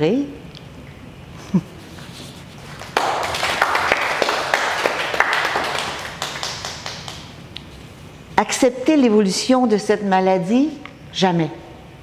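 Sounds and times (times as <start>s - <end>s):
audience applauding: 2.8s - 7.3s.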